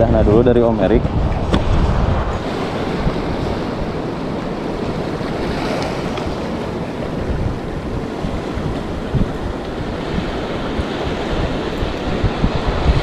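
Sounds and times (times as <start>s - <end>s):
surf washing over rocks: 0.0s - 13.0s
wind buffeting microphone: 0.0s - 13.0s.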